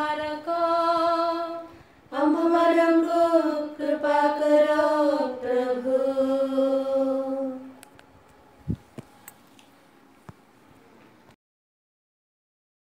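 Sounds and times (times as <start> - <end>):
person chanting: 0.0 - 7.8.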